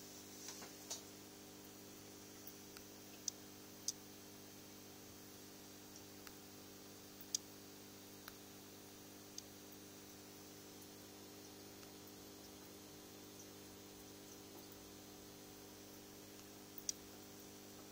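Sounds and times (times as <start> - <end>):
faint steady hum: 0.0 - 17.9
small sharp ticks: 2.4 - 4.1, 5.9 - 6.5, 7.2 - 7.5, 8.2 - 8.5, 9.3 - 14.9, 15.9 - 17.2.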